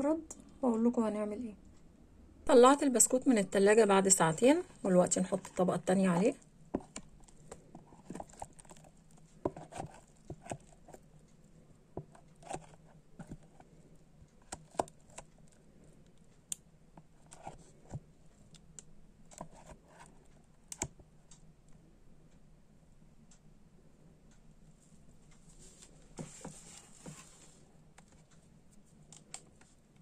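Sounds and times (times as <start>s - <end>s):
faint steady hum: 0.0s - 30.0s
spatula scraping plastic bowl: 6.8s - 11.0s.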